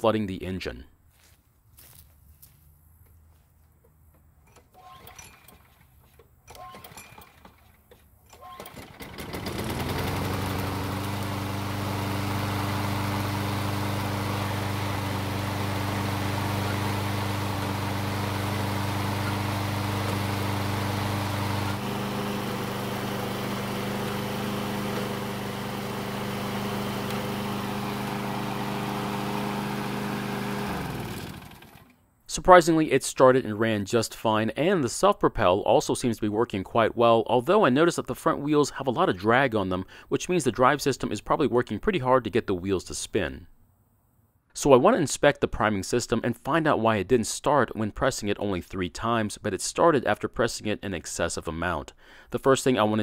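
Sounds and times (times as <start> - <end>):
lawn mower engine running: 3.9 - 32.0.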